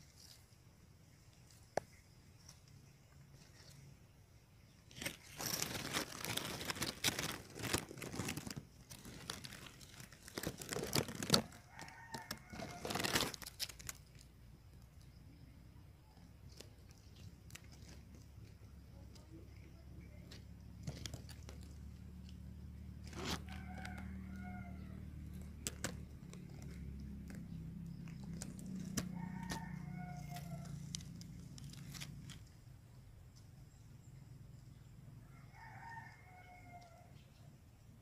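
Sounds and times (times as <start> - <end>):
dry leaves and branches crackling: 0.0 - 15.2, 16.1 - 34.8
rooster crowing: 11.3 - 13.3, 23.2 - 25.3, 28.5 - 31.1, 35.2 - 37.2.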